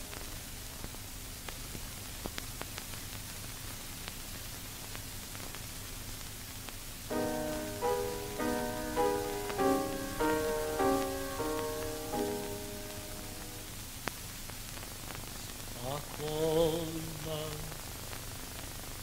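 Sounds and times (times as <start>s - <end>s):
film hiss and crackle: 0.0s - 19.0s
background music melody: 7.1s - 13.7s.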